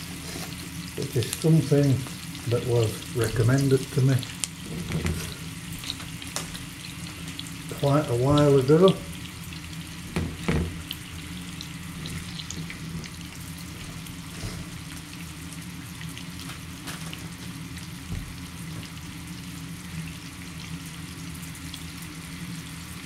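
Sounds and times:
food sizzling in frying pan: 0:00.0 - 0:23.0.

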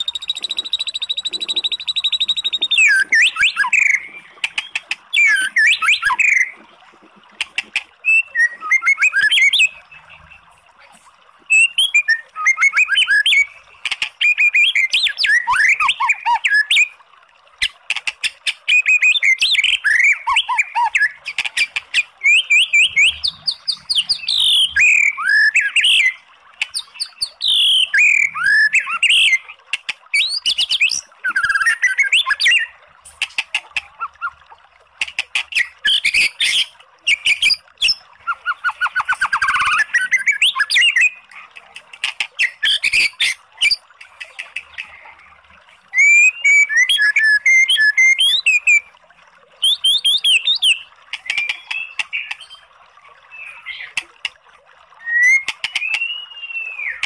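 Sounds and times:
bird singing whistles and clicks: 0:00.0 - 0:06.4, 0:07.4 - 0:09.8, 0:11.5 - 0:16.9, 0:49.6 - 0:52.6, 0:55.0 - 0:57.0.

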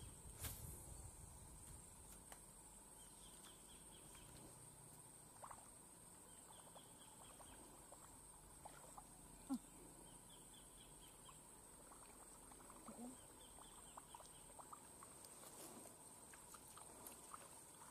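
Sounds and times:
distant bird chirps: 0:06.2 - 0:15.1.

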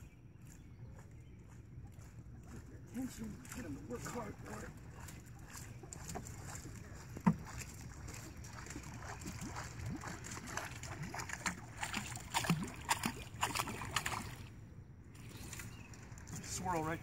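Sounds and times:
popper fly splashing on water: 0:08.9 - 0:14.5.

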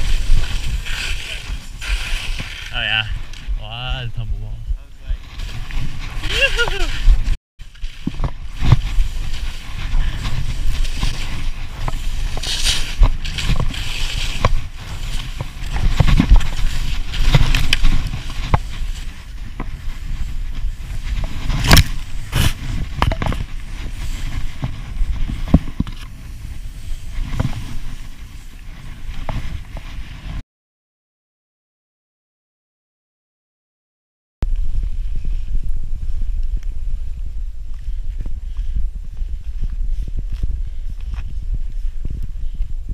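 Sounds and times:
skis hissing through snow: 0:00.0 - 0:03.1, 0:05.0 - 0:30.2
wind buffeting microphone: 0:00.0 - 0:30.4, 0:34.4 - 0:42.9.

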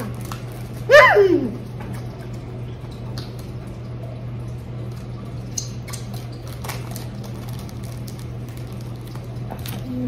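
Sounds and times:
plastic candy wrapper crackling: 0:06.4 - 0:09.9.

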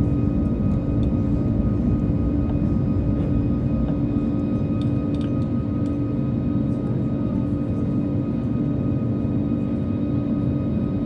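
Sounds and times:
steady droning tones: 0:00.0 - 0:08.1
airflow over fuselage: 0:00.0 - 0:11.0
jet engines low rumble: 0:00.0 - 0:11.0.

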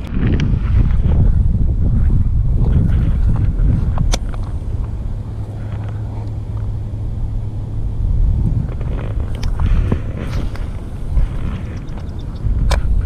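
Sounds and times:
wind rumbling on microphone: 0:00.0 - 0:13.0
light ticks and rustles: 0:02.0 - 0:06.8, 0:08.5 - 0:13.0
sharp click: 0:04.0 - 0:04.6.

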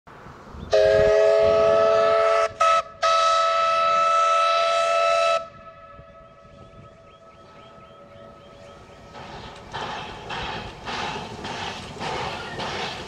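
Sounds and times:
low rumble of train: 0:00.1 - 0:13.0
steam locomotive whistle: 0:00.7 - 0:09.0.

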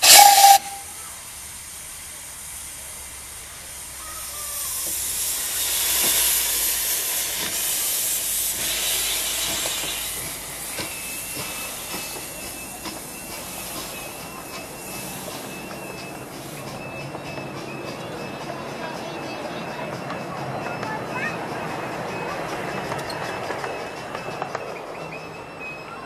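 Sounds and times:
steam locomotive hissing steam: 0:00.0 - 0:26.0
wheels clicking on rail joints: 0:02.1 - 0:26.0.

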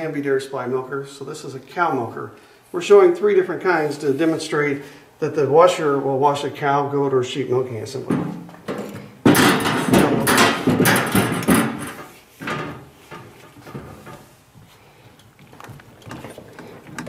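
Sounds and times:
hose knocks and rubbing: 0:08.0 - 0:14.7
metal clatter in steel sink: 0:08.1 - 0:14.2.

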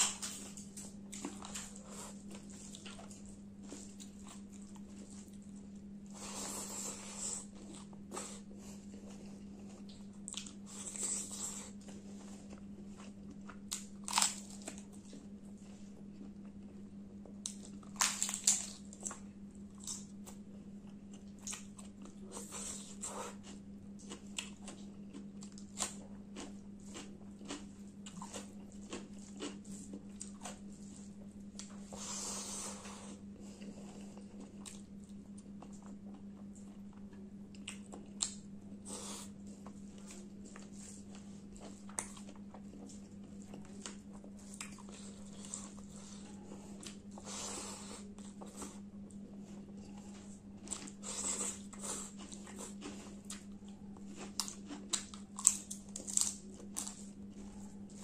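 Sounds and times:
chewing and mouth clicks: 0:06.2 - 0:31.8, 0:33.4 - 0:38.5, 0:39.2 - 0:58.0
crisp crunches: 0:50.0 - 0:57.1.

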